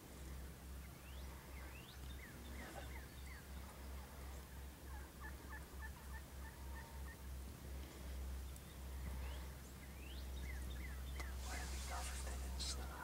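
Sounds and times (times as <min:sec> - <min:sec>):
wild turkeys calling: 0:00.8 - 0:07.5.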